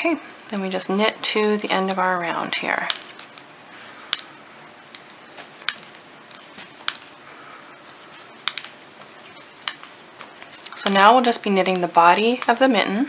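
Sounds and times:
metal knitting needles clicking: 2.8s - 3.4s, 4.1s - 4.3s, 4.9s - 7.2s, 8.4s - 12.9s.

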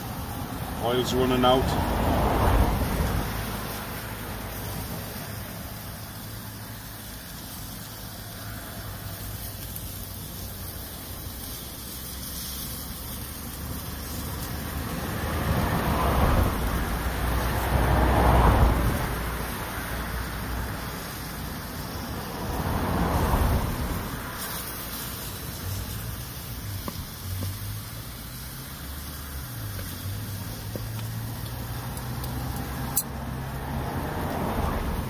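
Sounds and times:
cars passing: 0.0s - 35.0s.

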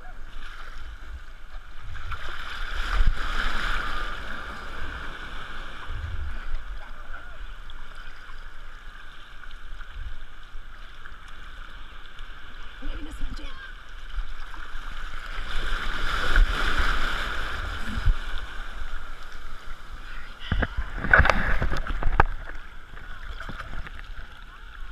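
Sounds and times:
water sloshing and lapping: 0.0s - 24.9s
small wave breaking: 13.8s - 24.6s.

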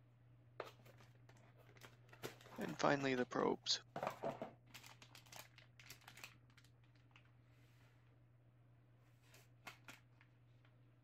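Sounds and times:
plastic bag crinkling: 4.6s - 7.4s.

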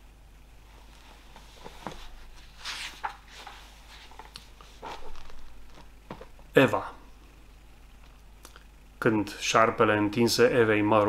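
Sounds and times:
soft rustle: 0.6s - 6.5s
handling and movement noises: 0.8s - 6.5s.

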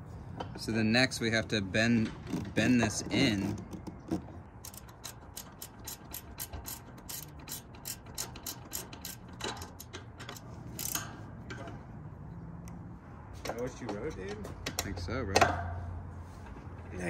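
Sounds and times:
ratchet wrench clicking: 4.6s - 11.2s.

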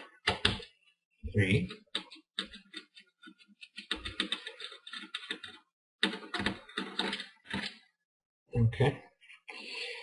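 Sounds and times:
screwdriver clicking and scraping: 1.9s - 7.8s.

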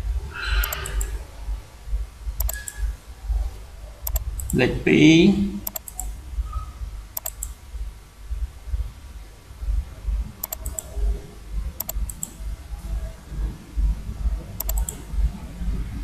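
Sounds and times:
low uneven rumble: 0.0s - 16.0s
computer mouse clicking: 0.6s - 1.2s, 2.4s - 2.9s, 4.0s - 4.6s, 5.6s - 6.1s, 7.2s - 7.6s, 10.4s - 11.1s, 11.8s - 12.4s, 14.6s - 15.1s.

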